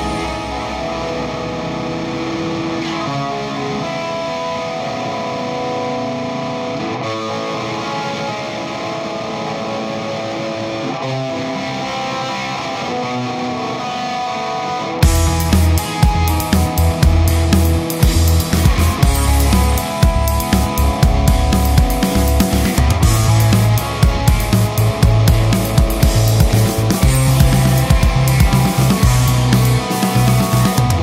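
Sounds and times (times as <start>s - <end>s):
electric guitar chords: 0.0s - 31.0s
heavy drum beat: 15.0s - 31.0s.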